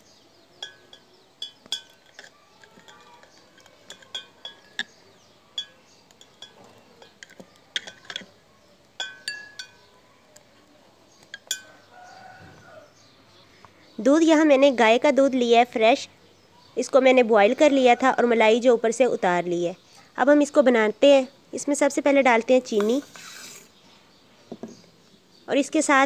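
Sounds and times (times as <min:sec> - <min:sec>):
knife clinking against bowl: 0:00.6 - 0:08.3, 0:09.0 - 0:09.9, 0:11.3 - 0:11.8.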